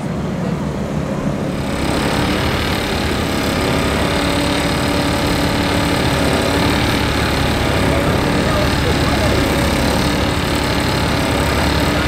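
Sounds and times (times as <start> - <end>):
car engine idling: 3.0 - 12.0.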